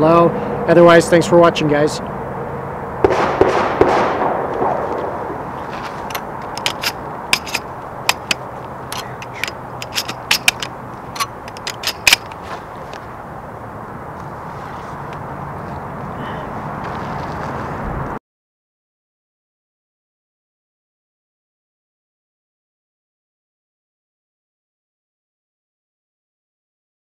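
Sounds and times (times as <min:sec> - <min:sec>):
rustle of sling and gear: 0:04.8 - 0:13.2, 0:14.2 - 0:16.1, 0:16.8 - 0:17.8
metallic clicks of shotgun loading: 0:06.1 - 0:12.4.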